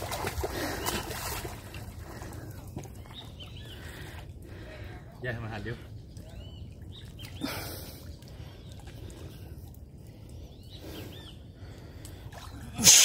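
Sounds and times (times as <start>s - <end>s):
birds chirping: 0.5s - 12.8s.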